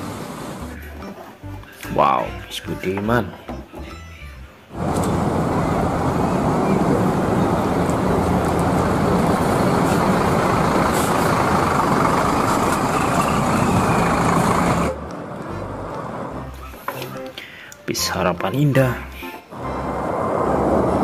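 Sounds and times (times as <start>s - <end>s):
diesel bus engine: 0.0s - 1.8s, 4.6s - 17.7s, 19.5s - 21.0s
road noise: 0.0s - 21.0s.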